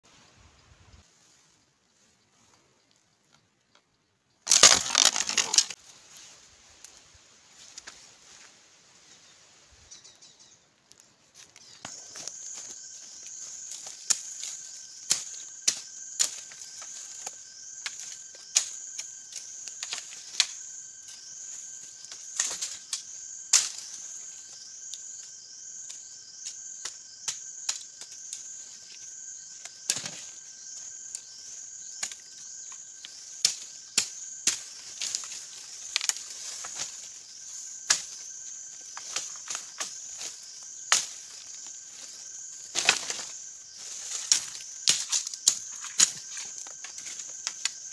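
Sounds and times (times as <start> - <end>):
insect chorus buzzing: 0.1 - 47.9
dry bamboo stems snapping: 4.4 - 5.8, 13.8 - 20.6, 22.3 - 23.9, 29.8 - 30.2, 33.0 - 37.0, 37.8 - 38.2, 40.9 - 41.4, 42.7 - 47.9.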